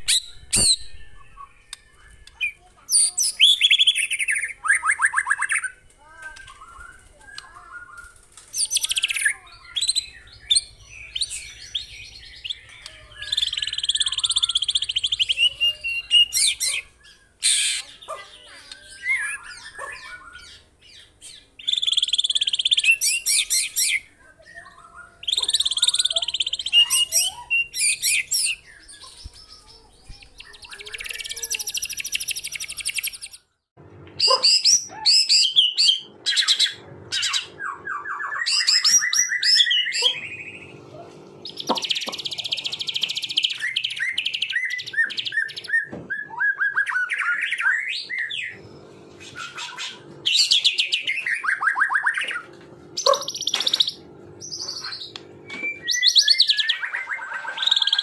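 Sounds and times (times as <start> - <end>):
songbird singing varied song: 0.0 - 33.5, 41.4 - 48.7, 53.0 - 58.0.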